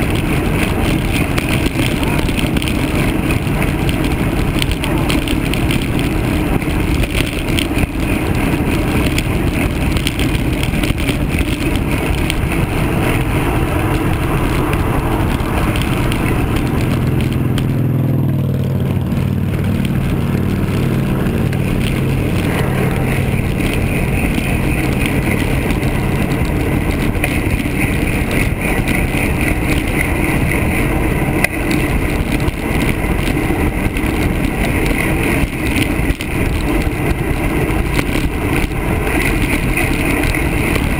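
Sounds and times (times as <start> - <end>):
bicycle tyre hum: 0.0 - 40.9
motor vehicle passing: 0.0 - 40.9
rushing wind noise: 0.0 - 40.9.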